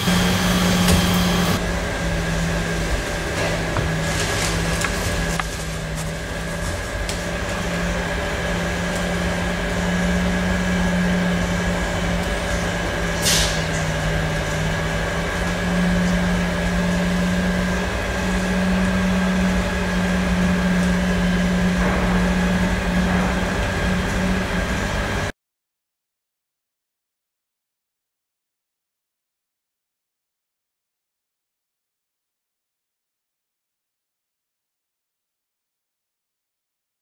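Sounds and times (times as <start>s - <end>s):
vacuum pump humming: 0.0s - 25.3s.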